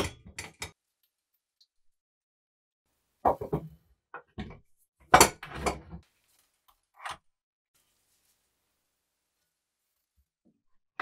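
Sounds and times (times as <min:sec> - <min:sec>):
faint room hiss: 0:07.8 - 0:10.3.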